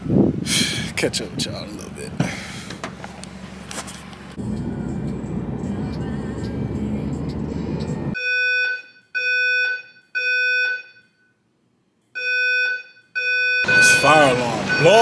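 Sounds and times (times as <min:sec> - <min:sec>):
car road noise: 0:00.9 - 0:08.2, 0:13.6 - 0:15.0
fire alarm beeping: 0:08.2 - 0:11.4, 0:12.2 - 0:15.0.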